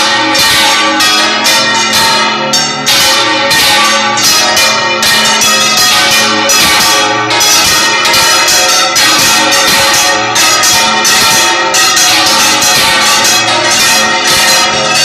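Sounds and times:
church bells pealing: 0.0s - 15.0s.

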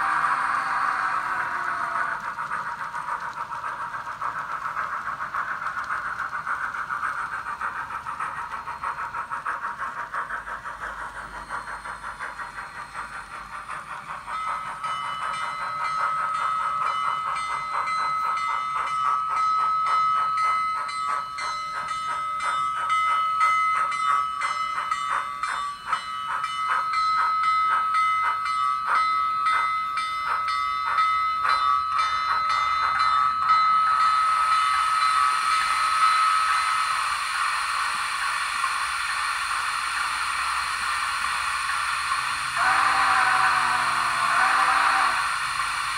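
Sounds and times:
hiss: 0.0s - 29.6s, 30.2s - 45.9s
steam exhaust chuffs: 0.0s - 45.9s
steady high tone: 38.6s - 45.9s.

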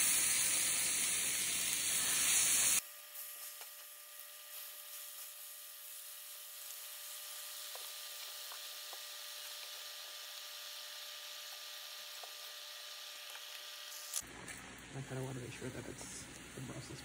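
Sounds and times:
chicken sizzling in a skillet: 0.0s - 14.2s
faint pops of frying meat: 3.4s - 5.4s, 6.7s - 14.8s.

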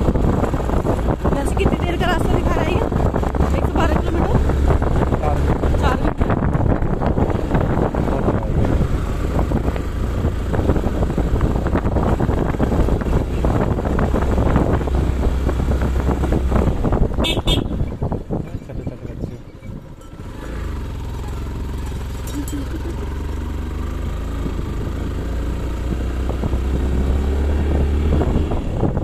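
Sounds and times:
wind on microphone: 0.0s - 20.1s, 22.7s - 29.0s
vehicle engine and road rumble: 0.0s - 29.0s
horn toots: 17.2s - 18.0s.

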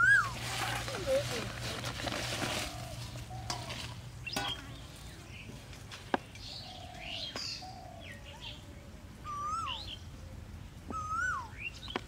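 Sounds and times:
looping bird call: 0.0s - 0.4s, 9.2s - 10.0s, 10.9s - 11.8s
birds chirping: 0.0s - 12.0s.

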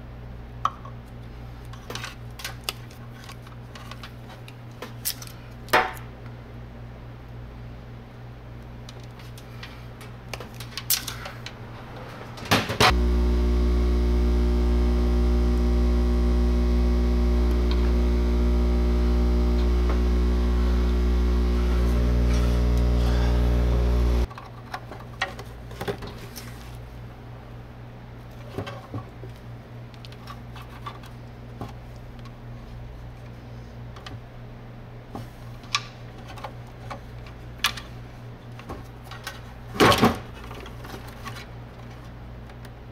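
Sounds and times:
electrical hum with low drone: 11.4s - 24.3s.

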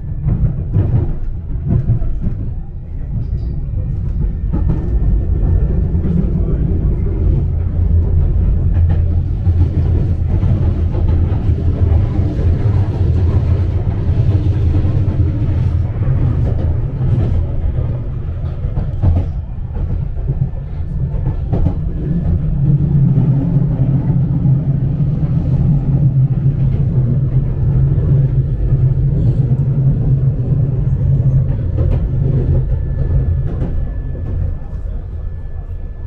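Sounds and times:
train interior rumble: 0.0s - 36.0s.

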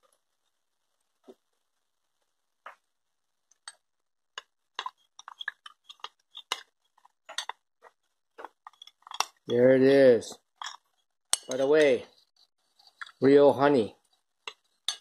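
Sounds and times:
metal spoon clinking in bowl: 10.6s - 12.0s, 14.5s - 15.0s.

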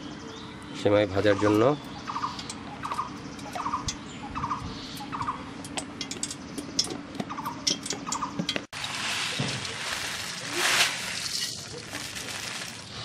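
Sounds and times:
bird calling: 1.2s - 5.6s
ghee crackling in a pot: 8.7s - 13.0s.

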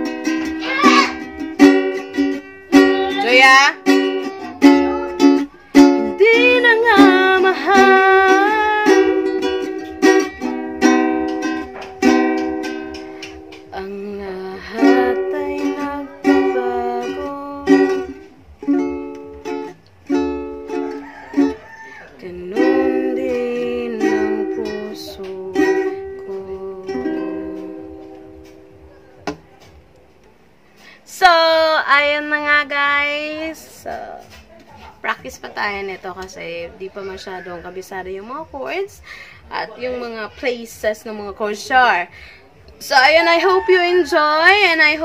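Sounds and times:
ukulele strumming: 0.0s - 38.9s, 42.8s - 45.0s
woman singing softly: 2.8s - 9.5s, 13.7s - 18.3s, 22.1s - 28.4s, 31.1s - 34.4s, 42.8s - 45.0s.

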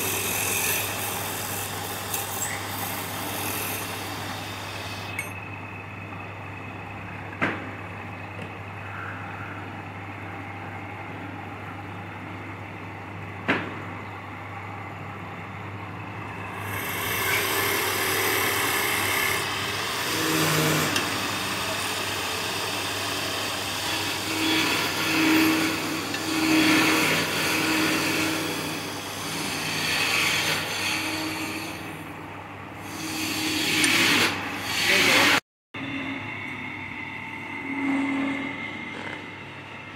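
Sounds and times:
tool cutting spinning wood: 16.5s - 32.0s, 32.8s - 35.4s
wood lathe humming: 16.5s - 32.0s, 32.8s - 36.1s.

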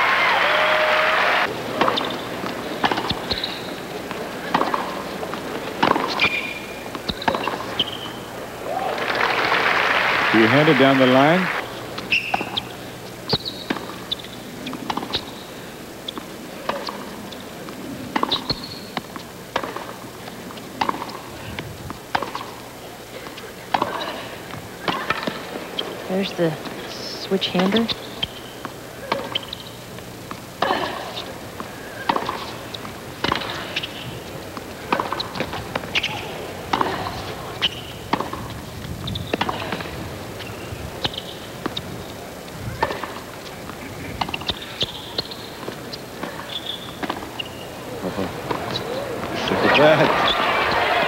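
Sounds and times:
racket hitting tennis ball: 1.7s - 8.3s, 13.3s - 15.3s, 16.1s - 21.3s, 21.9s - 22.6s, 23.2s - 26.0s, 27.6s - 38.6s, 39.2s - 41.9s, 42.7s - 50.4s
shoe squeaks on court: 1.8s - 3.8s, 6.1s - 8.2s, 18.2s - 19.0s, 40.4s - 41.9s, 44.2s - 47.8s.

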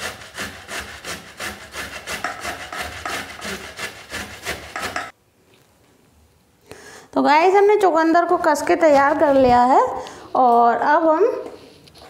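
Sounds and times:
grater rasping: 0.0s - 5.2s, 8.2s - 9.8s.

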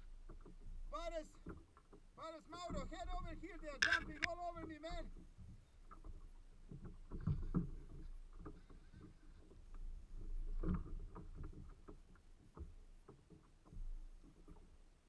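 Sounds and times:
water around kayak: 0.0s - 15.0s
wind: 0.0s - 15.0s
fishing rod and reel knocks: 3.8s - 4.4s.

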